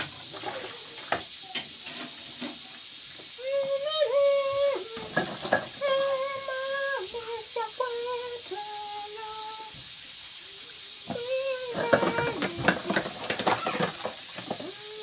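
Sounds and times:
pressure cooker hissing steam: 0.0 - 15.0
person humming: 3.4 - 9.8, 10.6 - 13.0, 14.6 - 15.0.

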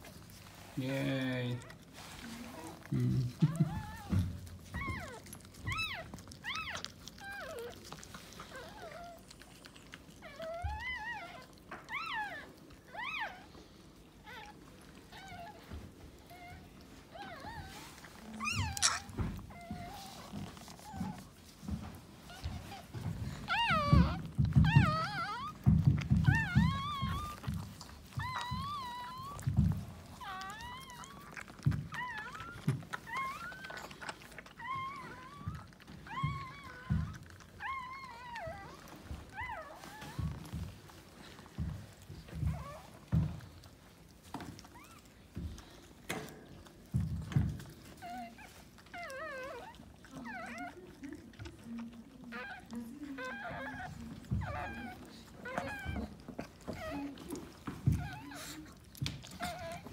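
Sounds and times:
puppy squealing: 2.6 - 13.5, 16.3 - 21.2, 22.3 - 40.7, 47.3 - 59.9.

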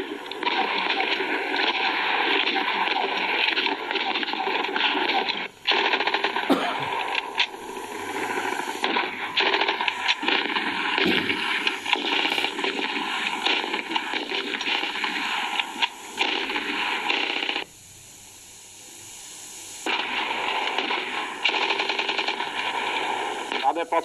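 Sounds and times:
rapid machine-gun fire: 0.0 - 17.7, 19.8 - 24.0
hiss: 0.0 - 24.0.

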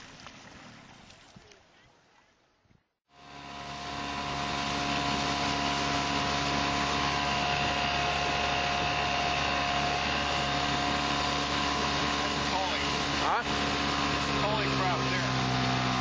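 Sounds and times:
outboard motor running: 3.1 - 16.0
rush of water: 3.2 - 16.0.

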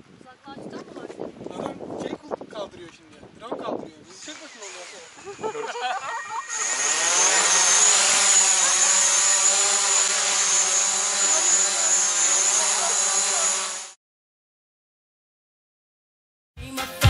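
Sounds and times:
drone propellers whining: 4.8 - 14.0.

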